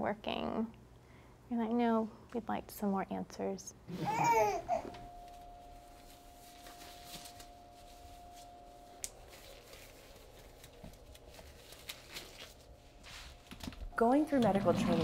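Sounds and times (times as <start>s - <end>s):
gloves rustling and crinkling: 5.1s - 14.0s.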